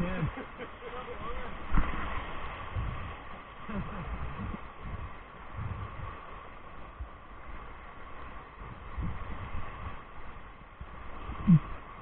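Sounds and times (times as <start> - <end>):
rushing whitewater: 0.0 - 12.0
wind buffeting microphone: 0.0 - 12.0
paddles thudding against raft: 0.3 - 6.2.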